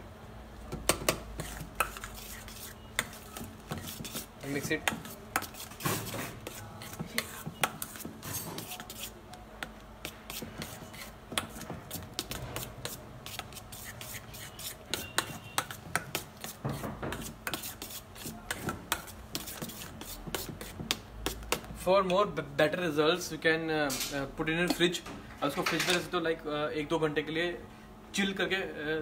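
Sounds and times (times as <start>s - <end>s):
utensil scraping a metal bowl: 1.4s - 9.2s, 10.0s - 20.8s.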